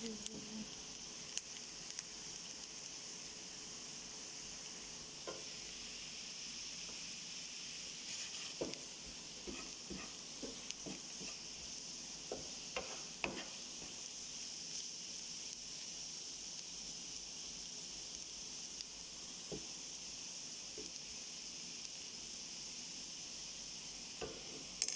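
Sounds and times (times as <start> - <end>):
onions sizzling in a frying pan: 0.0 - 24.9
wooden spatula scraping a pan: 8.0 - 11.6, 12.3 - 14.0.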